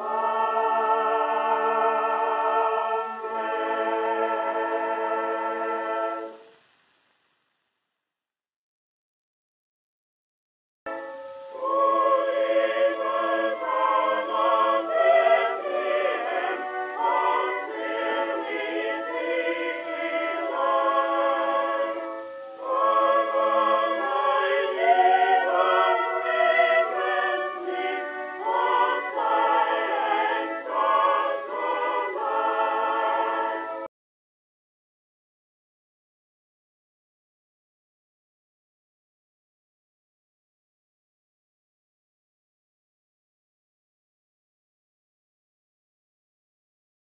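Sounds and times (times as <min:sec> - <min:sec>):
choir singing: 0:00.0 - 0:06.4, 0:11.5 - 0:33.9.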